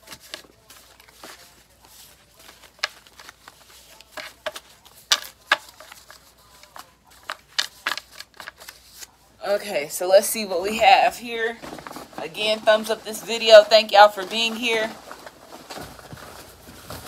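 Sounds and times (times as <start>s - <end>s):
cards being shuffled: 0.0s - 9.2s.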